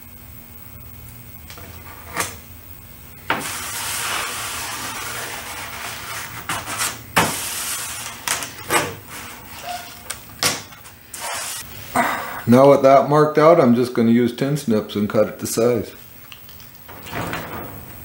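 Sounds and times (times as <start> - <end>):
tape ripping off roll: 3.3 - 11.6.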